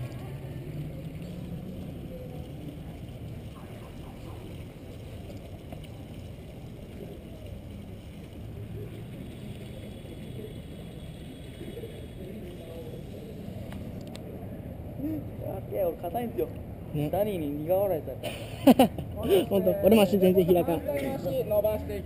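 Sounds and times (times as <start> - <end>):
muffled low outdoor rumble: 0.0 - 22.0.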